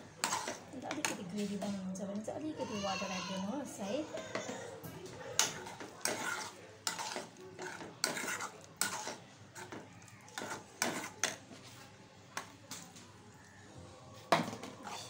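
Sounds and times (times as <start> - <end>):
metal spoon scraping steel pot: 0.2 - 1.7, 5.4 - 9.8, 10.4 - 11.4.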